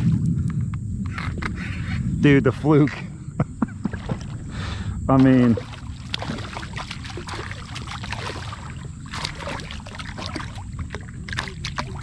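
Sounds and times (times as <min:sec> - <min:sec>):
fish splashing and thrashing: 0:03.7 - 0:12.0
water sloshing: 0:03.7 - 0:12.0.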